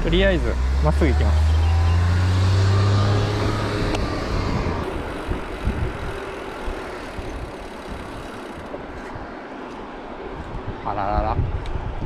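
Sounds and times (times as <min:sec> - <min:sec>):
car engine humming: 0:00.0 - 0:09.1
low bumps: 0:00.0 - 0:09.2
wind and road noise: 0:00.0 - 0:12.0.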